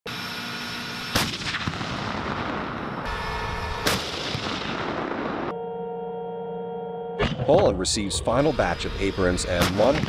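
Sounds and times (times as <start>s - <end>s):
tank gun shots echoing: 1.1s - 3.1s, 3.8s - 5.5s, 9.5s - 10.0s.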